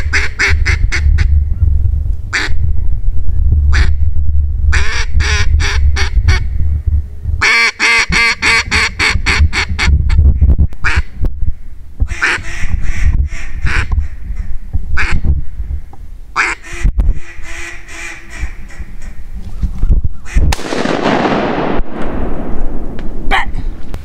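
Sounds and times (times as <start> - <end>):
duck call quacking: 0.0 - 1.3, 2.3 - 2.6, 3.7 - 4.0, 4.7 - 6.4, 7.4 - 9.9, 10.8 - 11.2, 12.1 - 15.2, 16.4 - 19.2.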